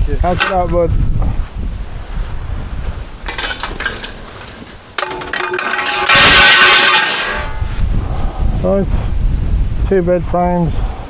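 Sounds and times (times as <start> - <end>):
scrap metal clanking and scraping: 0.2 - 0.8, 3.2 - 7.8.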